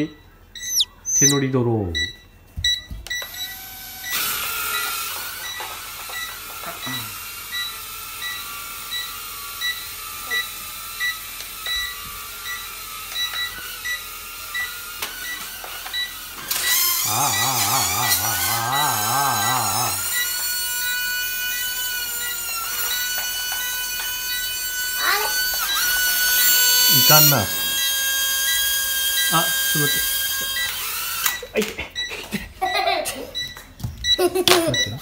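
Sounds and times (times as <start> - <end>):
short high beep: 0.6 - 1.4
person's wavering voice: 17.1 - 20.0.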